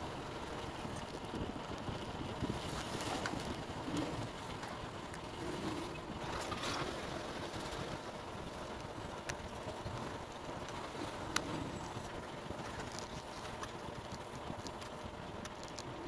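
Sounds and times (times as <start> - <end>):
low rumbling background noise: 0.0 - 16.0.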